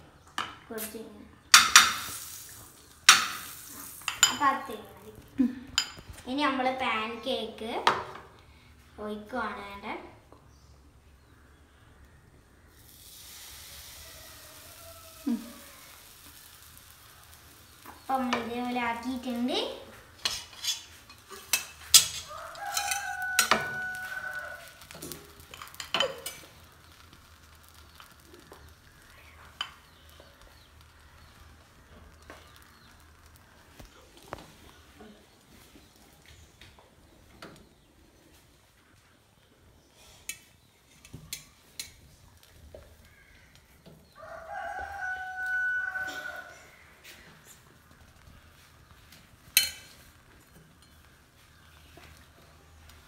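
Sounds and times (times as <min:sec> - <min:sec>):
rooster crowing: 0:13.7 - 0:16.1, 0:22.2 - 0:25.0, 0:44.1 - 0:47.2.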